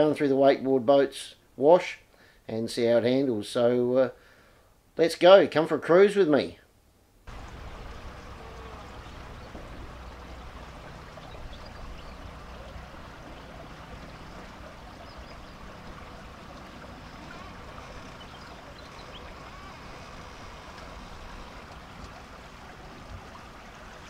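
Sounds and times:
low motor hum: 7.3 - 24.0
water washing past hull: 7.3 - 24.0.

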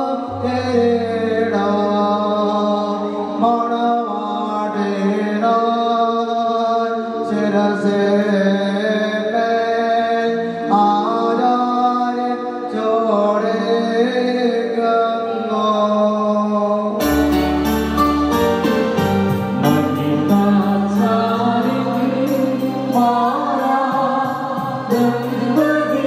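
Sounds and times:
sustained musical accompaniment: 10.4 - 26.0
slow chant-like singing: 19.6 - 26.0.

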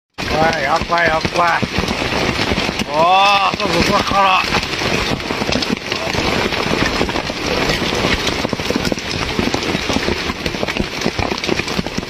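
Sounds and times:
hail clattering: 0.1 - 12.0.

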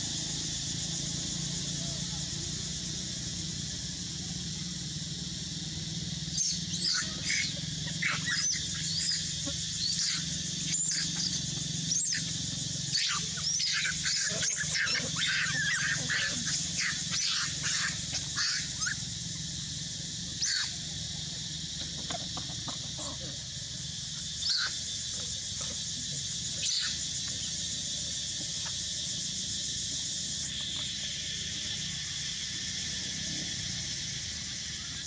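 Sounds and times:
monkey shrieking: 6.3 - 19.5, 20.4 - 20.9, 24.4 - 24.9, 26.6 - 27.0.

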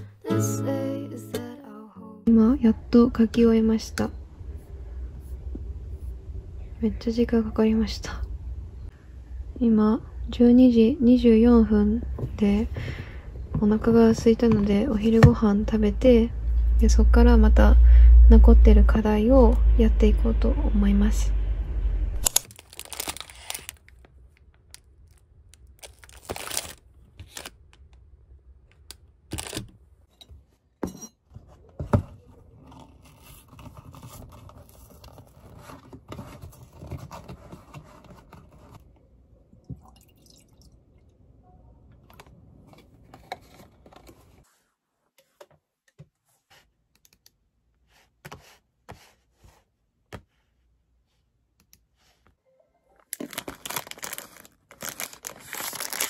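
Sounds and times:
paper carton being opened: 22.3 - 23.8, 25.8 - 27.5, 32.0 - 38.8, 53.2 - 56.0
plastic wrap crinkling: 22.3 - 27.7, 53.1 - 56.0.

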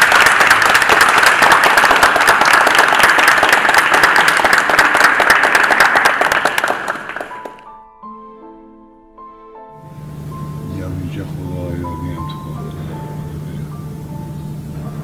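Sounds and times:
group of people applauding: 0.0 - 7.7.

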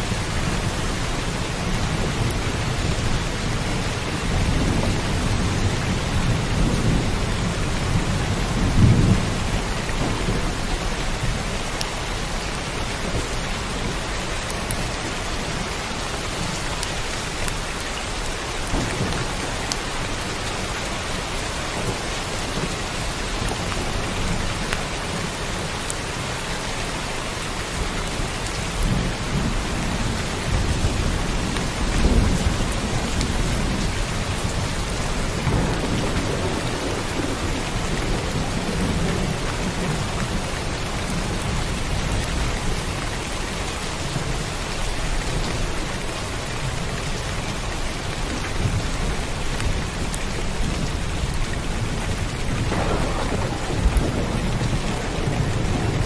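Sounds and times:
heavy rain: 0.0 - 56.0
thunder rumbling: 0.2 - 15.6, 28.6 - 42.8, 48.6 - 56.0.

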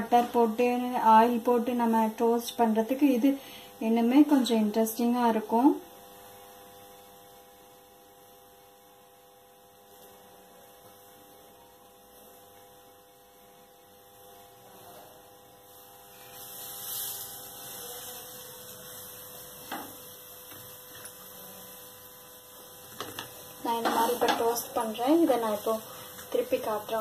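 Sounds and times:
faint steady hum: 0.0 - 27.0
soft hiss: 15.7 - 27.0.

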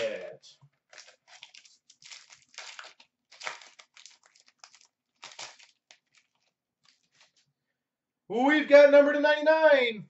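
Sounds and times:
foil wrapper crinkling and tearing: 0.8 - 7.5.

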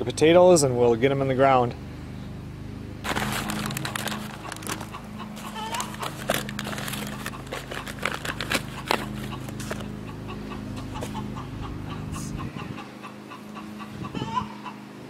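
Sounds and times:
bag rustling and crinkling: 3.0 - 9.9.

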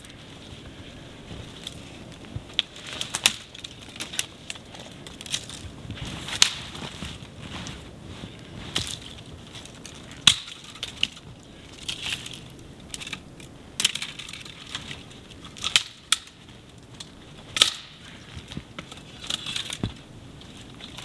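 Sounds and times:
footsteps crunching in snow: 0.1 - 10.2.

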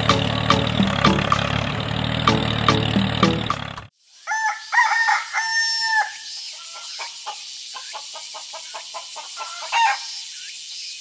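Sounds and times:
rooster crowing: 4.2 - 7.0, 9.4 - 10.1
chickens clucking rapidly: 6.7 - 10.0.

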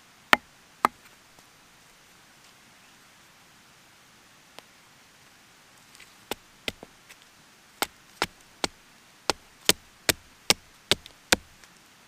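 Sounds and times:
hatchet chopping wood: 6.3 - 6.9, 7.8 - 11.6.

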